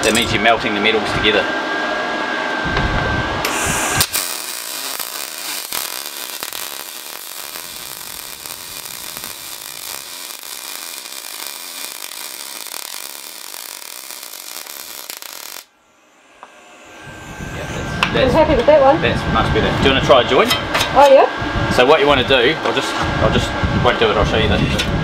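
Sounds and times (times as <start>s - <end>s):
welding arc hissing: 3.4s - 15.7s.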